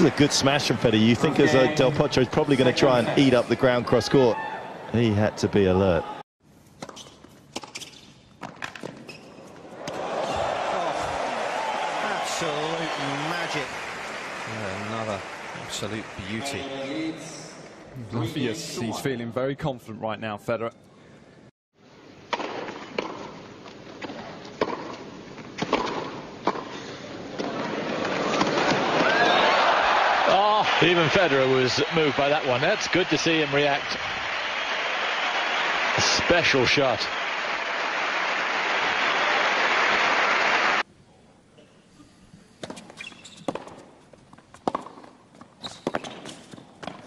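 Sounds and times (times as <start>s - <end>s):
arena crowd noise: 0.0s - 6.2s, 9.7s - 19.0s, 27.0s - 40.9s
racquet striking tennis ball: 22.3s - 23.3s, 24.0s - 25.0s, 25.6s - 26.7s, 42.6s - 43.9s, 44.6s - 47.0s
ball bouncing: 44.6s - 47.0s.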